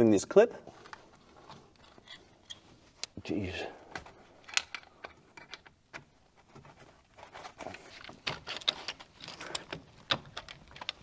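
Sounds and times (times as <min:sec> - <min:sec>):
metal tools tapping and scraping: 0:01.8 - 0:02.7.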